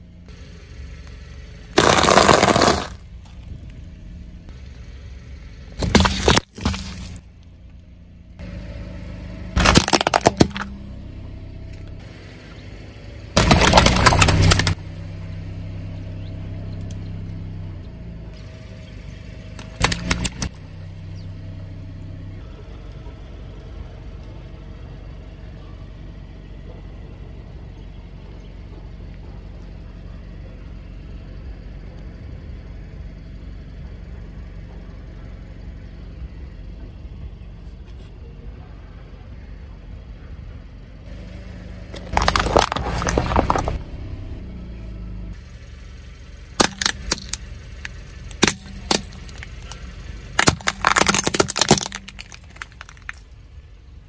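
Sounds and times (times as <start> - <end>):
car engine humming: 0.0 - 54.0
tyre crushing hard objects: 1.8 - 3.0, 5.8 - 7.2, 9.6 - 10.7, 13.4 - 14.8, 19.6 - 20.5, 41.9 - 43.8, 46.6 - 47.4, 48.3 - 49.8, 50.4 - 53.3.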